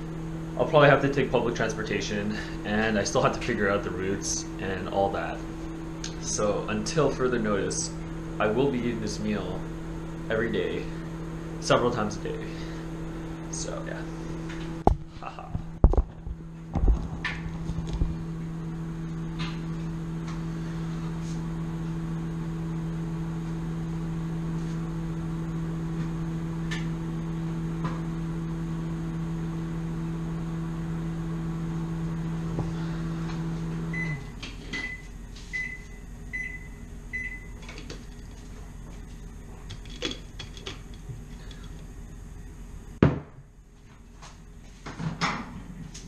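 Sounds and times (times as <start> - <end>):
microwave oven humming: 0.0 - 46.0
short high microwave beeps: 33.9 - 37.6.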